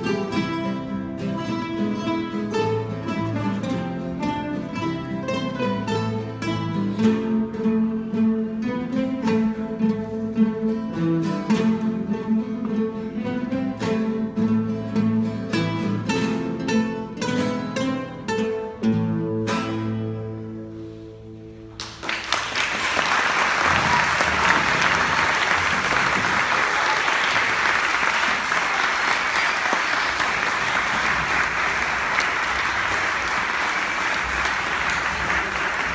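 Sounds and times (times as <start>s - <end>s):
classical guitars playing chords: 0.0s - 26.6s, 27.4s - 35.9s
audience applause: 21.8s - 35.9s.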